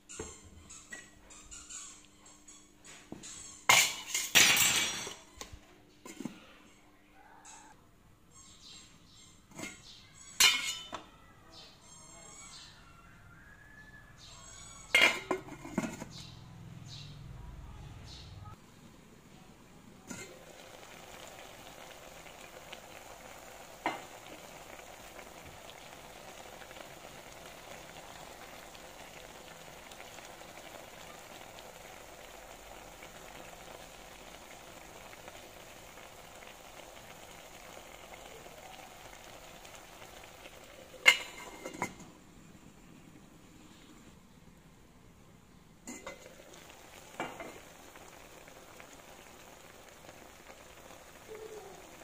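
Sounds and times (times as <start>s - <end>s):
metal lid clanking on pot: 3.7s - 5.2s, 10.4s - 11.0s, 14.9s - 16.1s, 40.9s - 42.1s, 45.9s - 46.4s
liquid boiling hiss: 18.5s - 52.0s.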